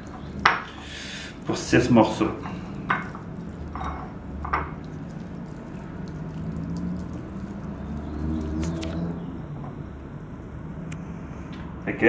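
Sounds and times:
low steady rumble: 0.0s - 12.0s
hands squishing raw meat: 4.7s - 9.1s.

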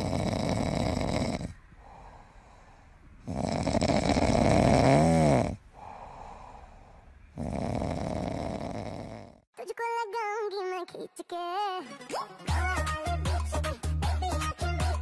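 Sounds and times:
animal snoring: 0.0s - 2.2s, 3.2s - 6.3s, 7.3s - 9.5s
quiet breaths: 0.0s - 9.5s.

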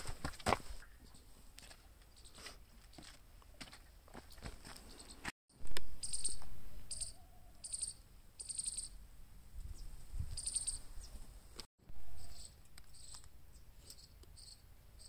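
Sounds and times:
faint footsteps on dirt path: 0.0s - 6.7s
insects chirping trills: 6.0s - 9.0s, 10.4s - 10.9s.

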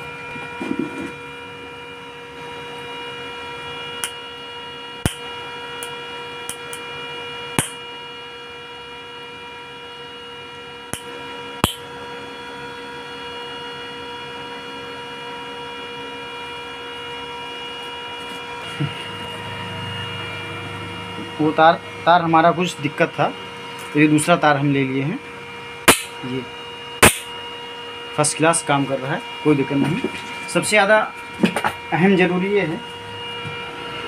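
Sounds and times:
welding machine humming: 0.0s - 34.0s
sharp snaps of sparks: 4.0s - 4.2s, 5.0s - 6.8s, 7.6s - 7.8s, 10.9s - 11.8s, 25.9s - 26.2s, 27.0s - 27.3s.

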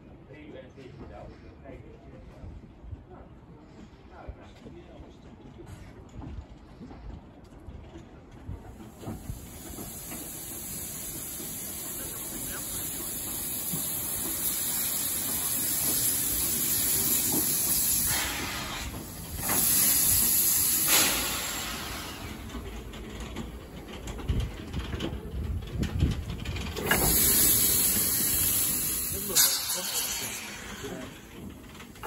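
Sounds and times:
steam locomotive hissing: 8.6s - 32.0s
burst of steam: 9.0s - 22.6s, 26.8s - 31.4s.

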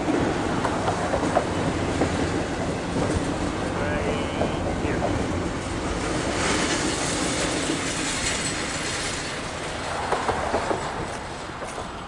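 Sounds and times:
freight train wheels clattering: 4.4s - 12.0s.

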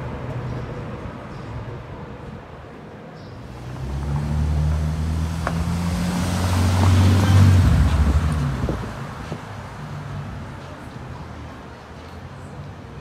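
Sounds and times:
car driving past: 3.4s - 9.5s.

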